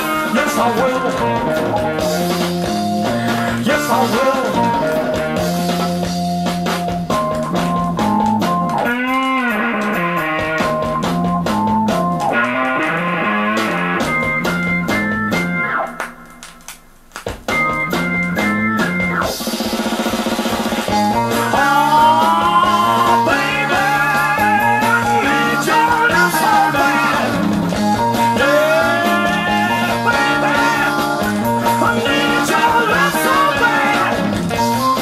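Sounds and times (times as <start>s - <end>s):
rock band with drums: 0.0s - 35.0s.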